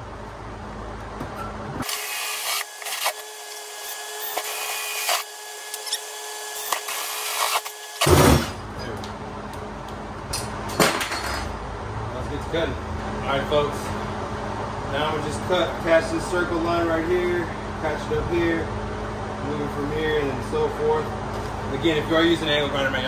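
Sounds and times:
cordless drill motor whine: 1.8 - 8.4
hole saw cutting aluminum: 1.8 - 8.6.

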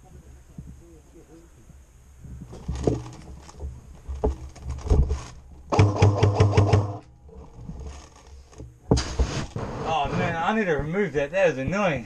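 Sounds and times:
separate knocks: 2.7 - 7.1
airsoft gun full-auto burst: 5.7 - 7.0.

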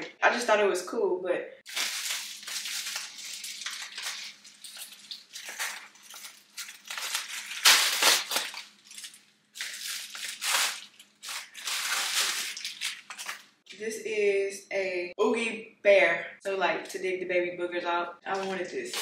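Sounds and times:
packaging crinkling and rustling: 1.7 - 13.7.

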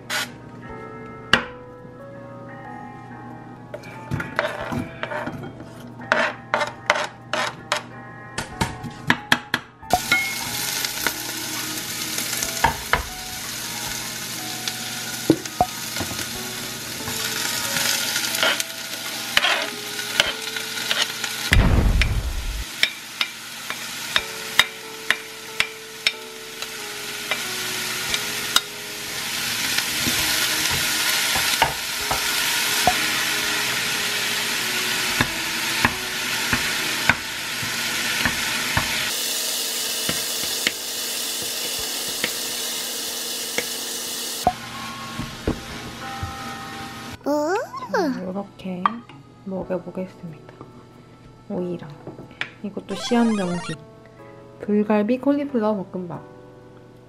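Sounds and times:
vegetables sizzling in a pot: 0.0 - 0.4, 9.9 - 47.2
spatula scraping a pot: 4.4 - 7.6
dull thump: 21.6 - 22.5.

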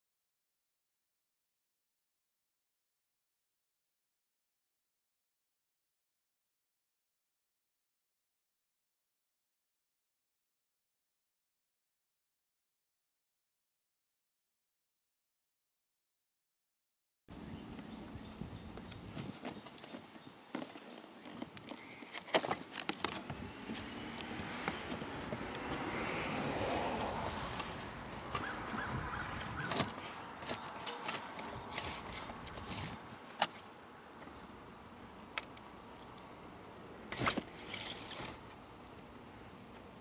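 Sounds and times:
cardboard rustling and tearing: 18.8 - 34.4, 37.1 - 38.6.

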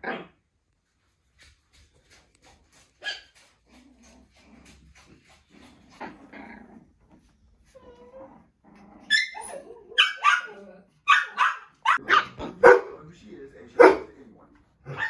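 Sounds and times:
puppy whining: 3.0 - 12.1
puppies growling and yipping: 3.3 - 10.9.

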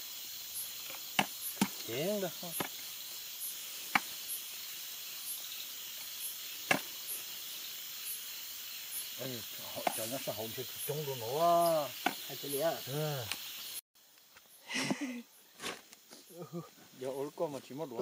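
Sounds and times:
crickets chirping: 0.0 - 18.0
sharp chopping strikes: 6.6 - 6.9.

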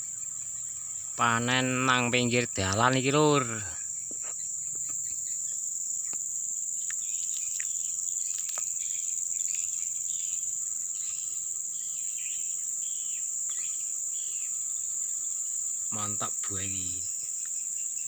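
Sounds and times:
high-pitched insect drone: 0.0 - 18.0
short insect chirps: 0.0 - 18.0.

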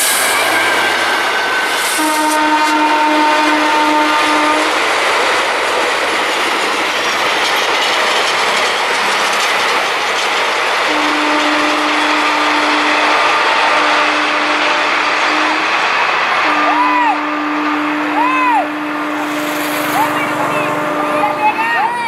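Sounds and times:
train wheels rushing on rails: 0.0 - 22.0
train horn blasts: 1.8 - 4.8, 10.9 - 15.8, 16.4 - 22.0.

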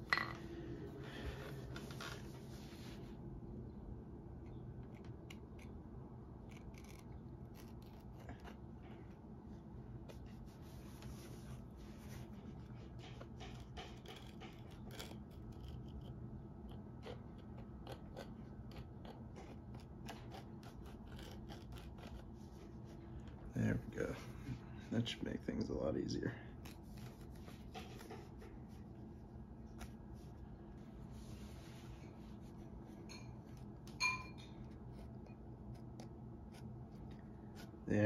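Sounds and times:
hand blade scraping leather: 6.4 - 8.7, 11.0 - 16.1, 16.7 - 22.5.

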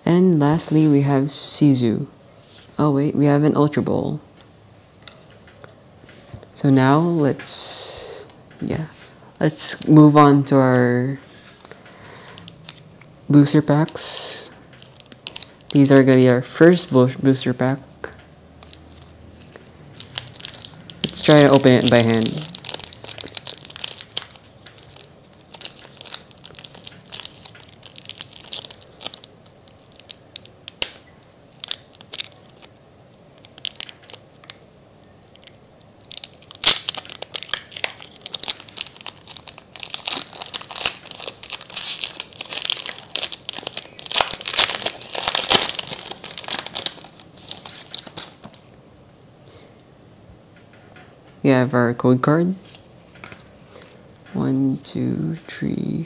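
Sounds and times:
foil wrapper tearing and crinkling: 14.8 - 16.2, 18.6 - 32.7, 33.4 - 34.6, 35.3 - 48.6
sharp crack: 30.7 - 31.1, 36.1 - 47.1.

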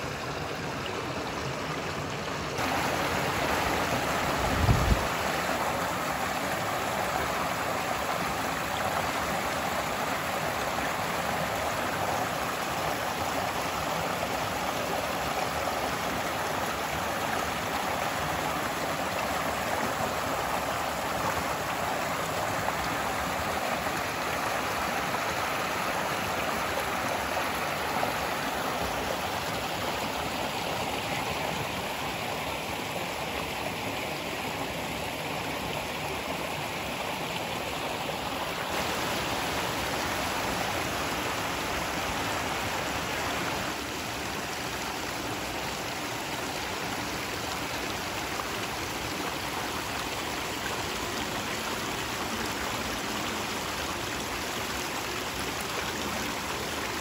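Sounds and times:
stream running over rocks: 0.0 - 57.0.

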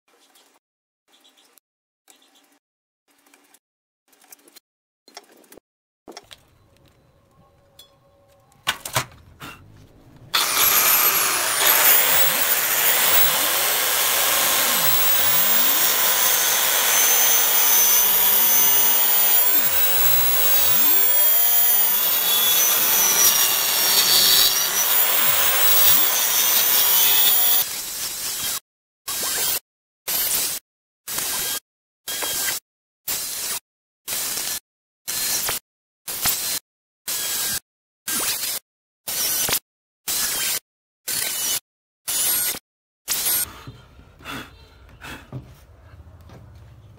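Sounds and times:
circular saw whining: 6.3 - 27.7.

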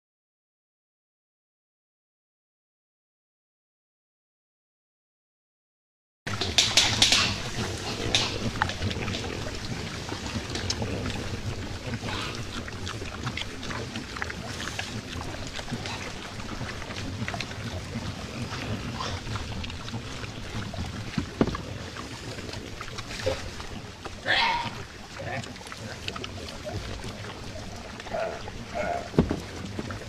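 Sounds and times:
wild boar crunching and rustling: 6.3 - 30.0.

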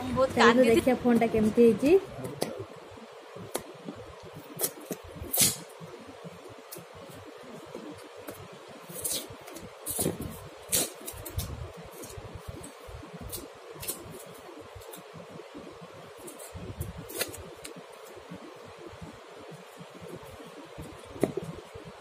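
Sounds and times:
background hiss: 0.0 - 22.0.

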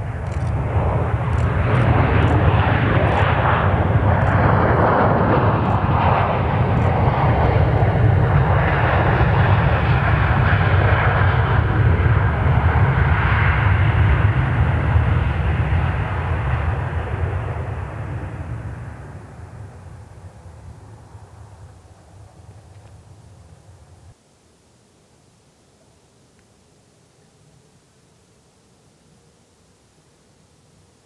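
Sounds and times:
airliner engines roaring: 0.0 - 24.2.

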